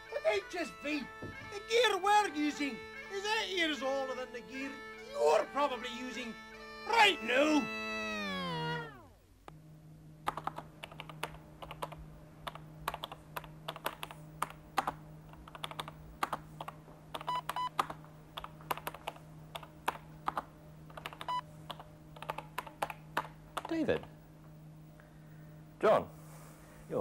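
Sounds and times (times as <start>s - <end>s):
low hum: 2.7s - 26.9s
computer keyboard typing: 10.3s - 23.8s.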